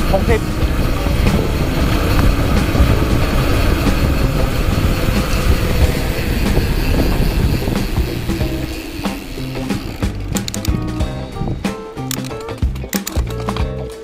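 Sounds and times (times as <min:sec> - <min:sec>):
bike tyres rumbling on dirt: 0:00.0 - 0:11.8
rattling clicks: 0:00.2 - 0:14.0.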